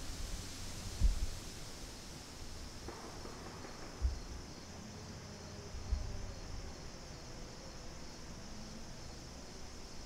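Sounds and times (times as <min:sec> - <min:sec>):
low rumble on microphone: 0:00.0 - 0:01.6, 0:05.7 - 0:06.8
insects hissing: 0:00.0 - 0:10.0.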